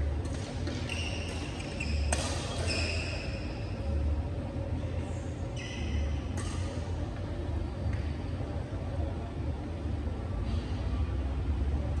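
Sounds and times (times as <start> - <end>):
racket striking shuttlecock: 0.2 - 2.6, 6.3 - 6.8
sneakers squeaking on court floor: 0.3 - 3.7, 5.5 - 6.6.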